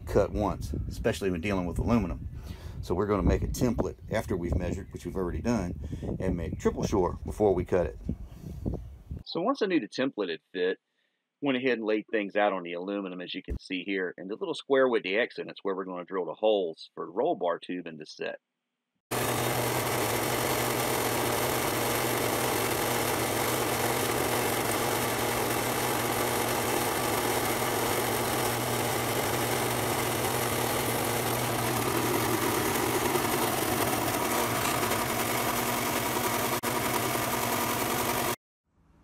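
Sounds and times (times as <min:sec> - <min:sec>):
drill press motor hum: 0:19.1 - 0:38.4
hole saw cutting metal: 0:19.1 - 0:38.4.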